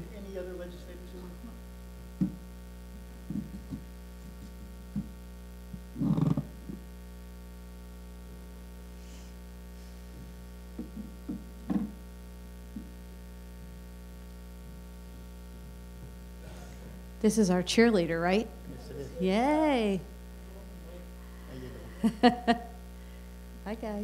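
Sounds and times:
electrical mains hum: 0.0s - 24.0s
soft bumps and knocks: 2.2s - 2.4s, 3.2s - 5.2s, 10.8s - 12.0s.

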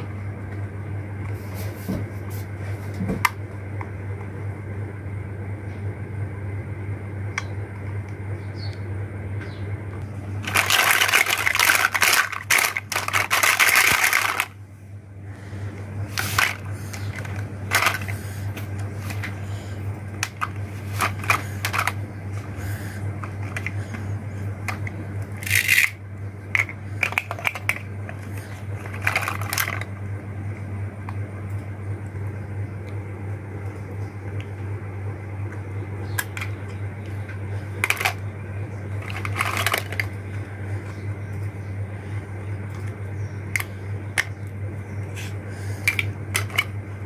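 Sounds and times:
steady low hum: 0.0s - 47.0s
plastic toys rattling in basket: 10.4s - 14.6s, 16.1s - 18.2s, 20.2s - 22.0s, 24.7s - 29.9s, 37.8s - 38.2s, 39.0s - 40.1s.

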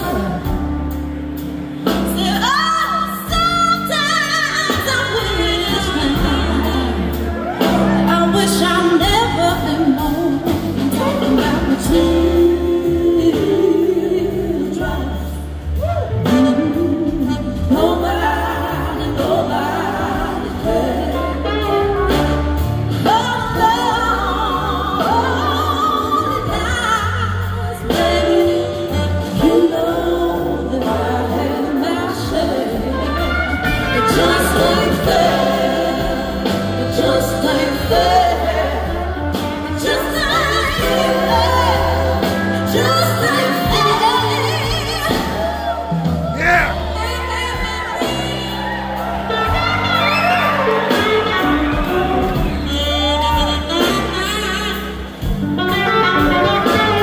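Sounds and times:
woman singing: 0.0s - 1.0s, 1.9s - 22.3s, 22.9s - 46.0s
live blues band playing: 0.0s - 57.0s.

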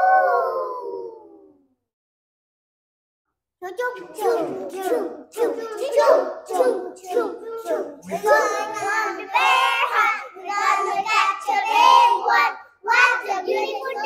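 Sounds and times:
young child singing and chanting: 3.6s - 14.0s.

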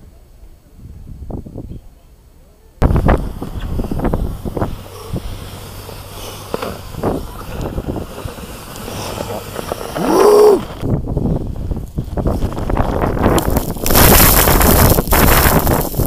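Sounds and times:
board scraping and knocking on snow: 2.8s - 16.0s
wind buffeting microphone: 2.8s - 16.0s
person calling out: 10.0s - 10.7s.

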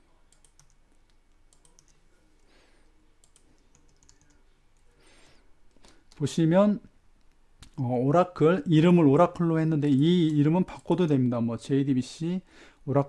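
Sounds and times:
computer keyboard typing: 0.3s - 0.8s, 1.5s - 2.0s, 3.2s - 4.4s, 9.8s - 11.2s.

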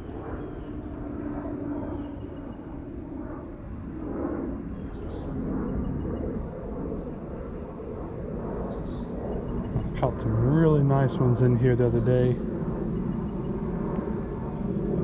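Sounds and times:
distant road traffic rumble: 9.6s - 12.5s.

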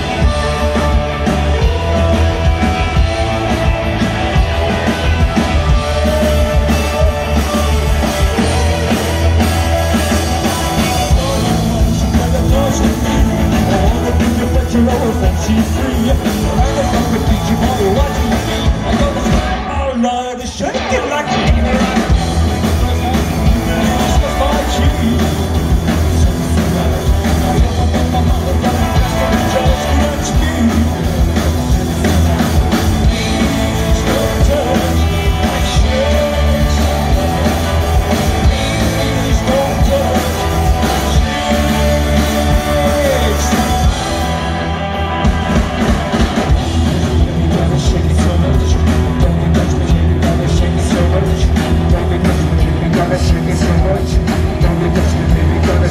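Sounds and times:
live rock band playing: 0.0s - 55.9s
person singing: 0.0s - 55.9s.

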